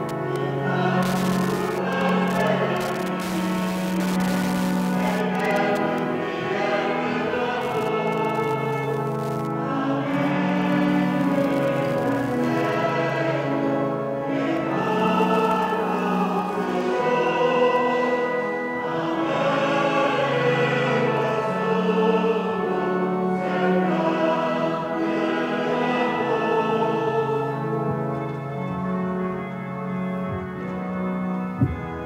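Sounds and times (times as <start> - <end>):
choir singing a hymn: 0.0 - 32.0
organ playing: 0.0 - 32.0.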